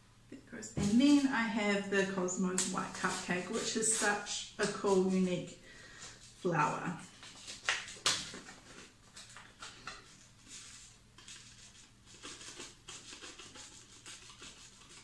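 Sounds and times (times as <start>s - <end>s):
paper rustling: 7.1s - 15.0s.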